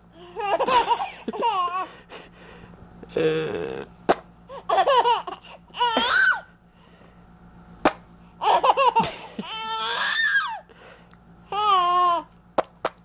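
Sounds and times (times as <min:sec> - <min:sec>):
baby laughing: 0:00.3 - 0:02.0, 0:04.5 - 0:06.5, 0:08.4 - 0:10.6.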